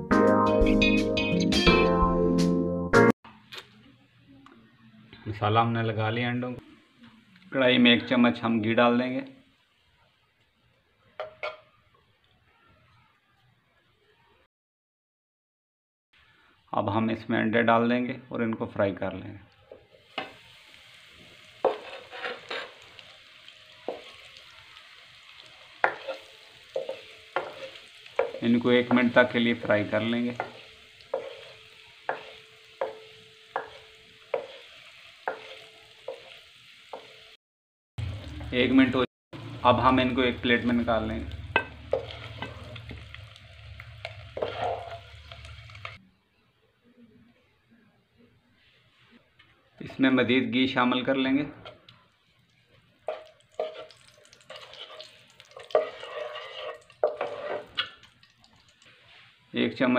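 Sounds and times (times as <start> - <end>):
faint sizzle: 3.4 - 14.5, 18.8 - 37.4, 38.0 - 46.2, 46.8 - 59.9
wooden spoon scraping a pan: 21.5 - 23.1, 23.9 - 24.3, 25.4 - 37.2, 41.6 - 43.1, 44.0 - 46.0, 52.7 - 58.0
wooden spoon knocking on wok: 25.8 - 29.2, 31.2 - 34.6, 35.3 - 36.3.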